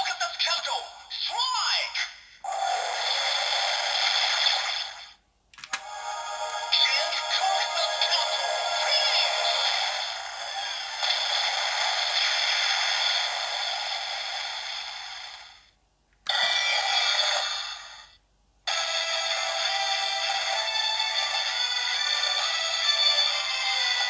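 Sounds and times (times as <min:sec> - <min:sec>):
toy electronic music and effects: 0:16.3 - 0:17.8, 0:18.7 - 0:24.0.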